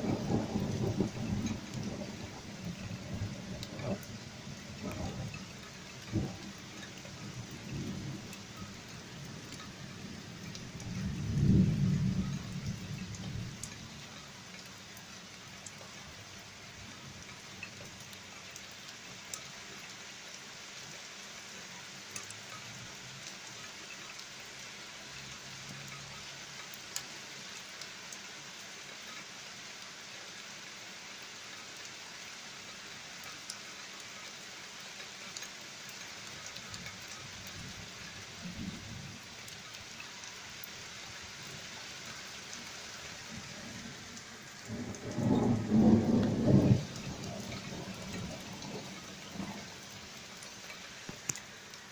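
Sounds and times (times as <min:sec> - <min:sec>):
thunder rumbling: 0:00.0 - 0:05.4, 0:09.4 - 0:13.7, 0:43.6 - 0:49.9
heavy rain falling: 0:00.0 - 0:51.9
sharp drip ticks: 0:00.1 - 0:29.9, 0:32.7 - 0:42.9, 0:43.7 - 0:51.9.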